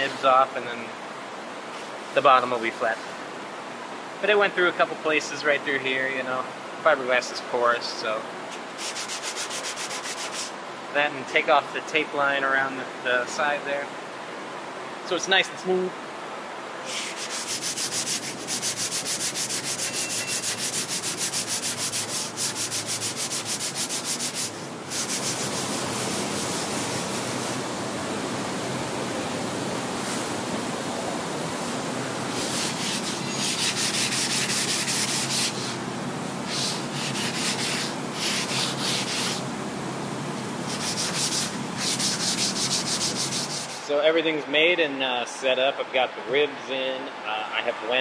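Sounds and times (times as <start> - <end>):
hand sanding block strokes: 8.8 - 10.6, 16.8 - 27.6, 32.3 - 35.8, 36.5 - 39.5, 40.6 - 43.9.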